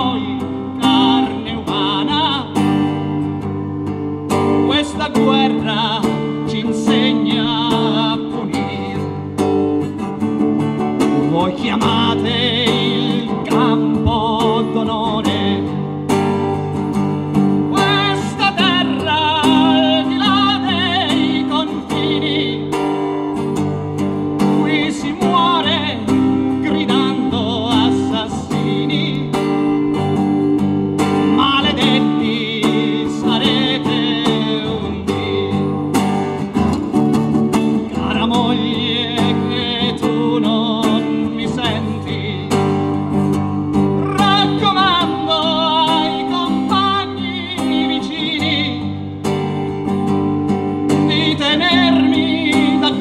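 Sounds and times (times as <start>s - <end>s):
person singing: 0.0s - 2.7s, 11.2s - 15.8s, 17.7s - 22.8s, 24.5s - 30.1s, 31.2s - 35.8s, 43.9s - 49.0s, 50.9s - 53.0s
acoustic guitar strummed and picked: 0.0s - 53.0s.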